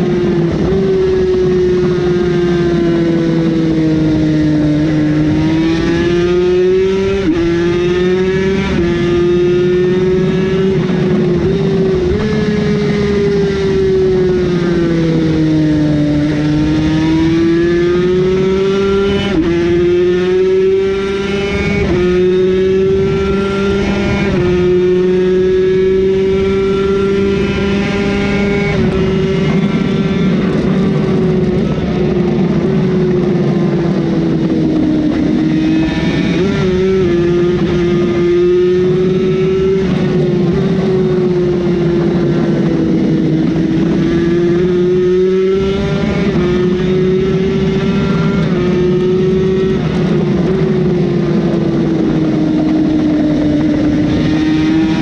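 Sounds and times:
racing motorcycle engine revving: 0.0 - 55.0.

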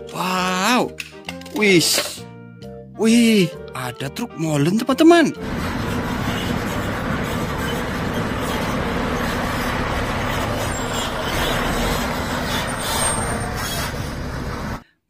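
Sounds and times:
diesel engine running: 5.4 - 14.8.

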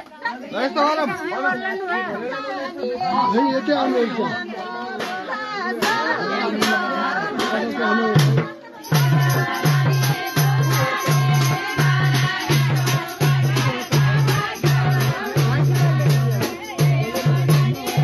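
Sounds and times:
women singing folk song: 0.0 - 18.0
hand drum beat: 4.9 - 18.0.

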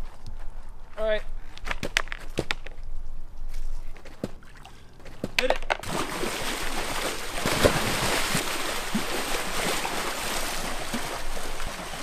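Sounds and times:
splash into swimming pool: 5.8 - 12.0
water churning: 5.8 - 12.0.

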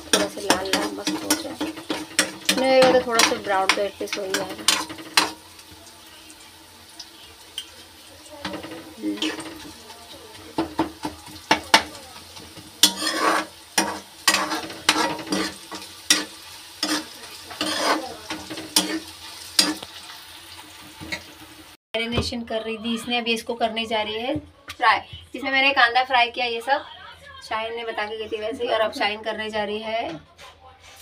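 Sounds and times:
metal spatula scraping pan: 0.0 - 5.6, 8.4 - 20.0
oil sizzling: 0.0 - 21.8.

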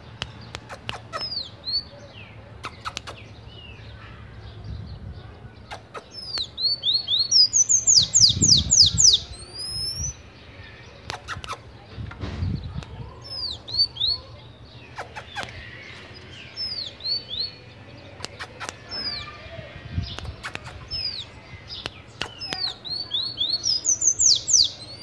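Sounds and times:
sharp clicks: 2.6 - 3.2, 5.7 - 6.6, 20.0 - 23.3
bird singing squeaky notes: 5.3 - 25.0.

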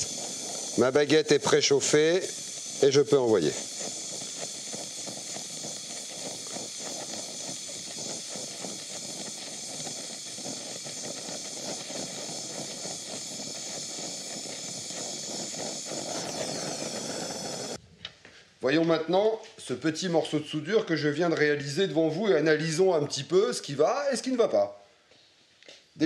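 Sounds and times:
welding torch flame hissing: 0.0 - 17.8.

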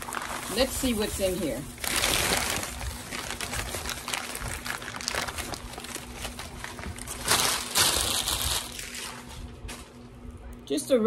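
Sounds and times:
newspaper and plastic bag crinkling: 0.0 - 10.2.

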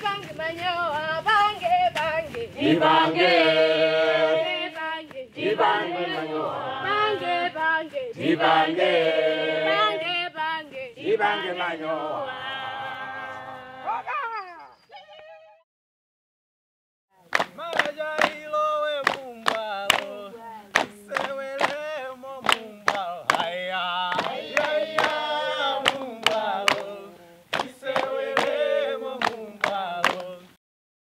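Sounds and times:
group of voices singing: 0.0 - 14.1, 17.4 - 30.6
hand clapping: 1.9 - 2.5, 17.2 - 30.4.

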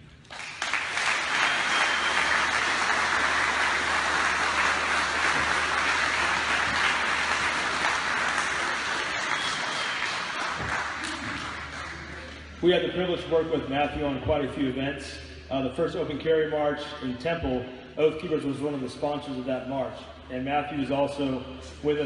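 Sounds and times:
audience applauding: 0.2 - 12.5.

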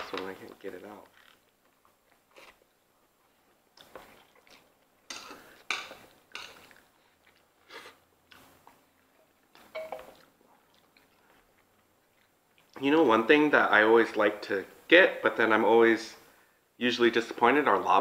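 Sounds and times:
chewing: 1.1 - 12.8.

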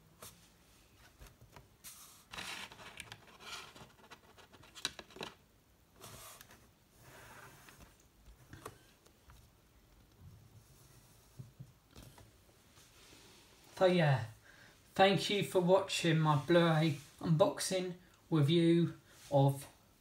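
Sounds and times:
packaging rustles and scrapes: 2.0 - 5.3.

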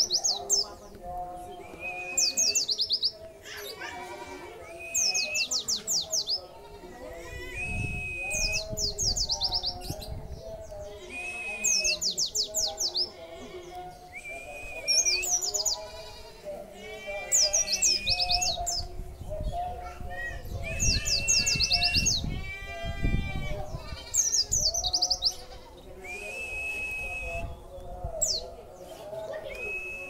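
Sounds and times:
bird singing whistled phrase: 1.6 - 3.1, 4.6 - 6.4, 7.4 - 10.1, 11.0 - 13.1, 14.0 - 15.7, 20.2 - 22.3, 26.0 - 27.6, 29.4 - 30.0.

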